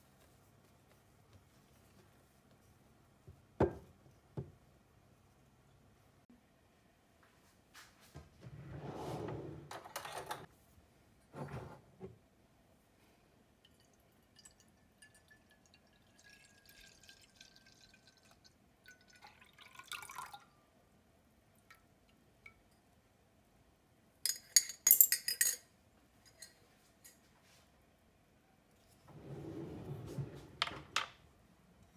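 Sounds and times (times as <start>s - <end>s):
liquid pouring into ceramic bowl: 13.6s - 20.5s.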